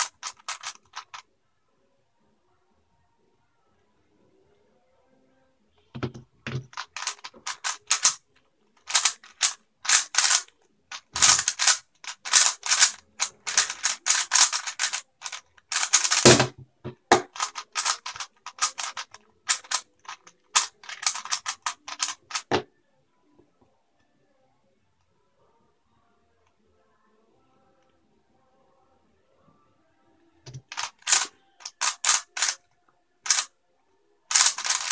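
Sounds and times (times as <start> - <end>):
plastic puzzle cube clicking: 0.0 - 1.2, 6.0 - 8.2, 8.8 - 22.6, 30.5 - 32.6, 33.2 - 33.5, 34.3 - 34.9.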